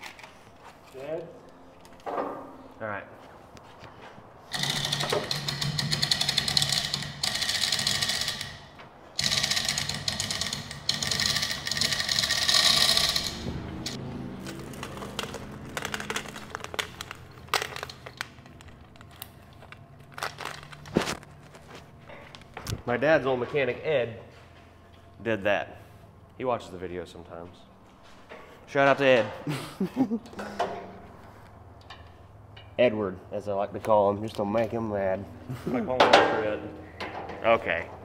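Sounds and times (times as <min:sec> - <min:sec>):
chain rattling through hoist: 0:04.5 - 0:14.0.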